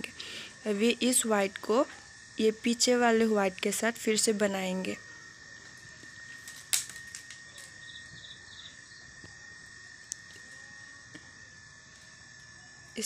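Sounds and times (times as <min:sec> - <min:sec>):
insect trilling: 0:00.0 - 0:13.0.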